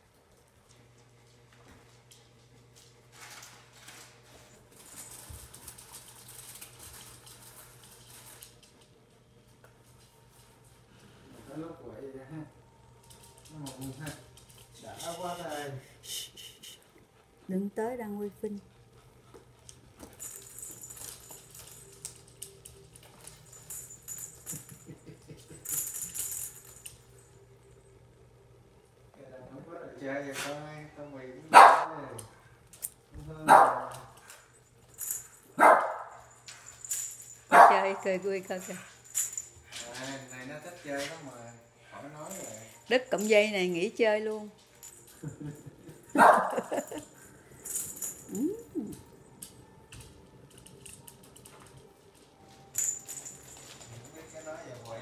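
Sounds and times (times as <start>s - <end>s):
light jingling: 36.2s - 44.0s, 44.6s - 49.0s, 52.6s - 55.0s.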